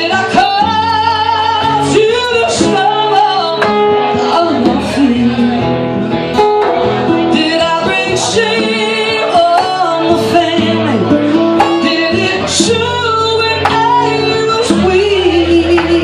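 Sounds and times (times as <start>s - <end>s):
woman singing: 0.0s - 5.8s, 7.1s - 16.0s
strummed acoustic guitars: 0.0s - 16.0s.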